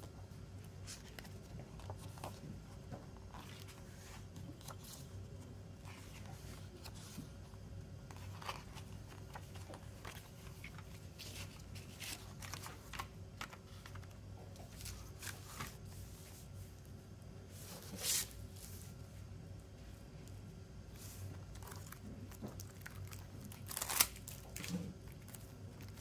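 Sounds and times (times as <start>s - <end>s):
paper pages rustling: 0.6s - 16.4s.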